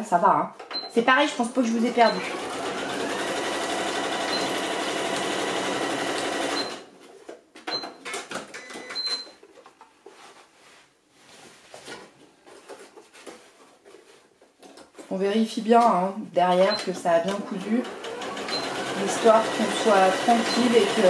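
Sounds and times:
sewing machine stitching: 1.7s - 6.9s, 17.2s - 21.0s
fabric rustling: 9.9s - 15.0s.

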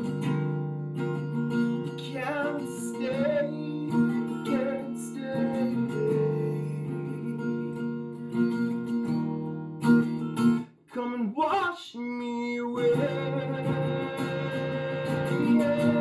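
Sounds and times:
acoustic guitar strumming: 0.0s - 16.0s
man singing: 1.9s - 7.6s, 10.9s - 16.0s.

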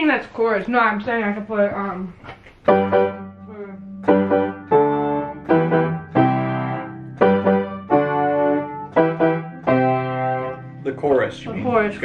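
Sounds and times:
keyboard piano chords: 2.6s - 12.0s.

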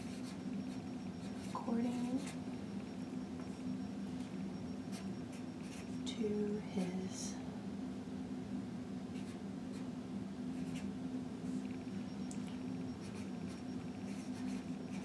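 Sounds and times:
pen scratching on paper: 0.0s - 2.4s, 13.0s - 15.0s
steady low hum: 0.0s - 15.0s.

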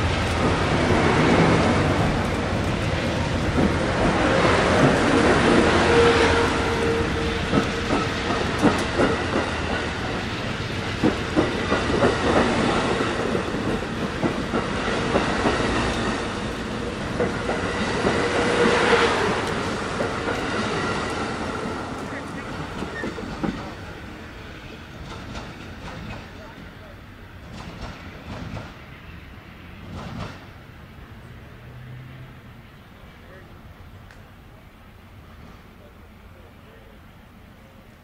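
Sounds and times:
wheels clacking over rail joints: 0.0s - 28.9s, 29.8s - 30.6s
train cars rumbling past: 0.0s - 38.0s.

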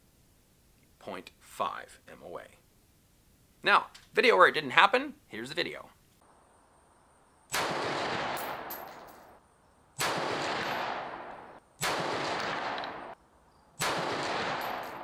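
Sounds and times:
rifle shots with echo: 7.5s - 9.4s, 10.0s - 13.2s, 13.8s - 15.0s.

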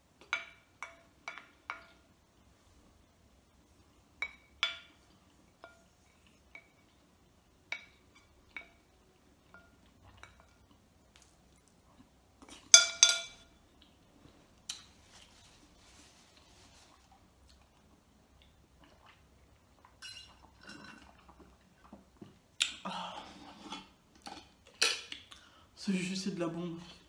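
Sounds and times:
wooden spoons tapping a bowl: 12.7s - 13.5s.

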